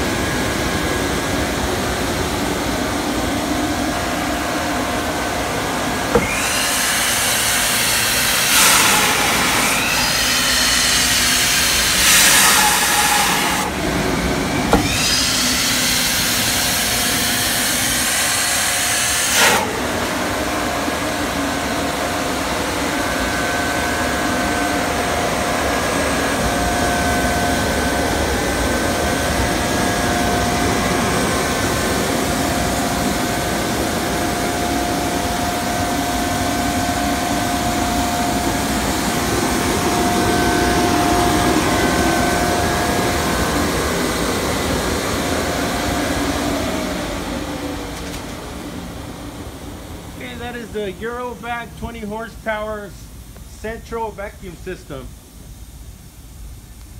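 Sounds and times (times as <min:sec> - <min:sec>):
vacuum blower rushing air: 0:00.0 - 0:50.8
steady whine: 0:00.0 - 0:56.9.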